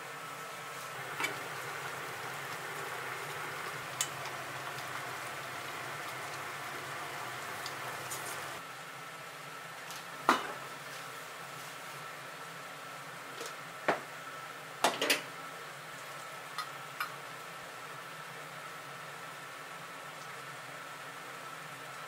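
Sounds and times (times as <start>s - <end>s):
food sizzling on gas stove: 0.4s - 8.6s.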